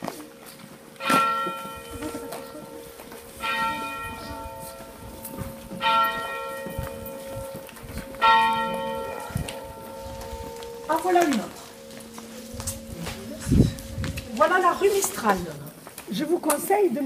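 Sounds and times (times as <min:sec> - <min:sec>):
church bell ringing: 0:01.0 - 0:15.3.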